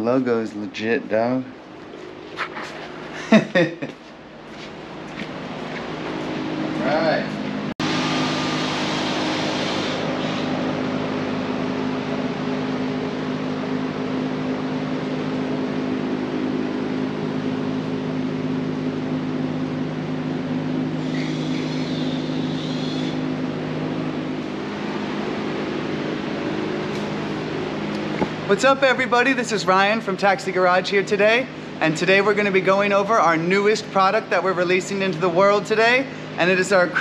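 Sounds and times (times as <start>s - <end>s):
low mechanical hum: 0.0s - 37.0s
high-pitched whine: 6.1s - 15.9s, 20.2s - 31.4s.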